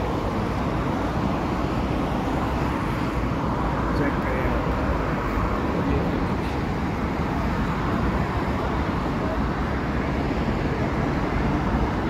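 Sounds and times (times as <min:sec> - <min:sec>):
road traffic: 0:00.0 - 0:12.0.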